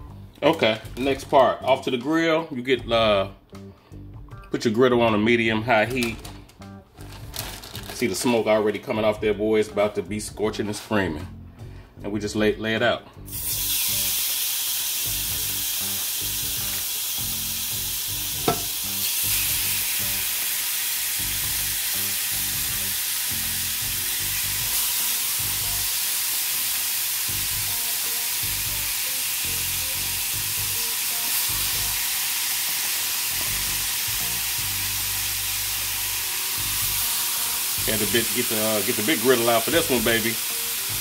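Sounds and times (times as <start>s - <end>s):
chicken sizzling on a griddle: 13.3s - 41.0s.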